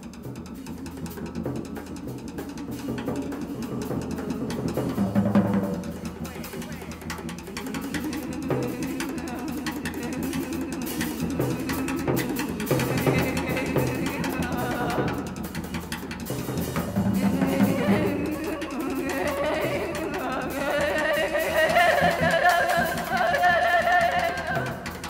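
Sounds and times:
music with drum beat: 0.0 - 25.0.

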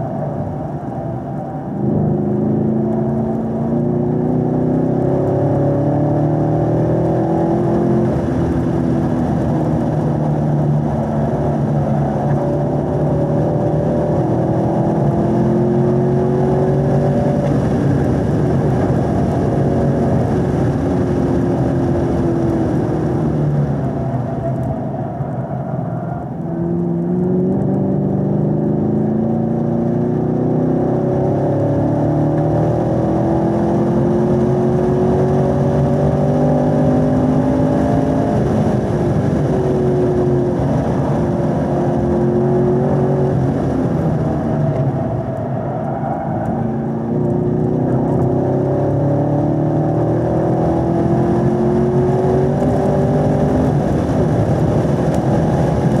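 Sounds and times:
car engine accelerating: 0.0 - 56.0.

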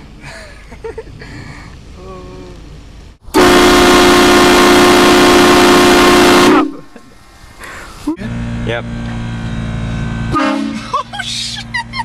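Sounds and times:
loud distorted train horn: 3.3 - 6.9, 10.3 - 10.9.

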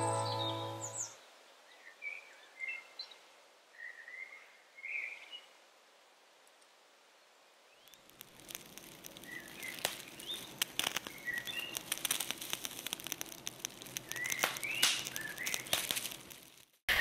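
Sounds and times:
dense crackling and clicking: 7.8 - 16.9.

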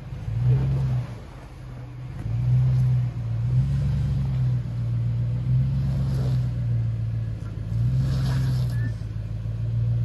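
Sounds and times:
engine running at low revs: 0.0 - 10.0.

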